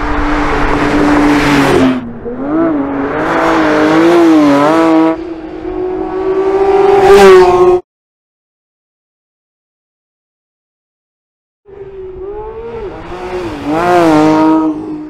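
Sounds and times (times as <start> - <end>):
race car engine revving: 0.0 - 7.8, 11.9 - 15.0.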